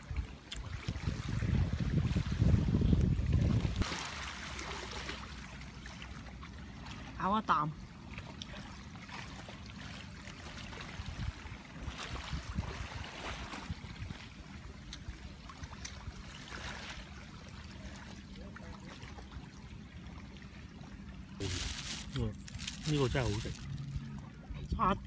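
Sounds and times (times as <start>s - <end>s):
wind rumble on microphone: 0.0s - 3.9s, 10.8s - 15.3s, 22.5s - 25.0s
waves lapping at shore: 0.0s - 25.0s.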